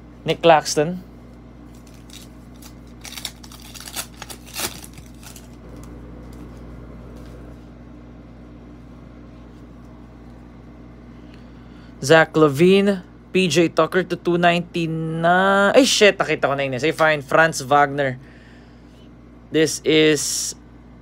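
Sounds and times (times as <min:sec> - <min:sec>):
low room hum: 0:00.0 - 0:21.0
foil wrapper crinkling: 0:01.6 - 0:07.3
cards being handled: 0:01.7 - 0:07.6.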